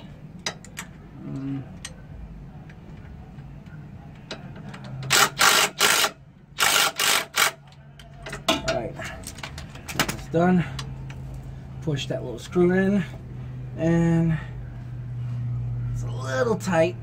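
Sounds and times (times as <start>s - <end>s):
ratchet wrench clicking: 5.1s - 7.6s.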